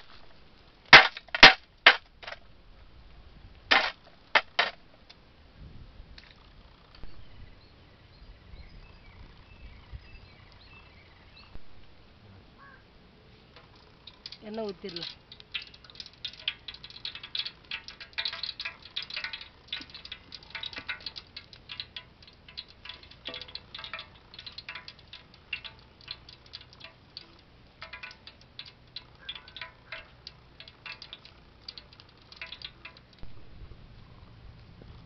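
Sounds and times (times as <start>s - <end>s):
cooking oil spitting and crackling: 13.5s - 35.0s.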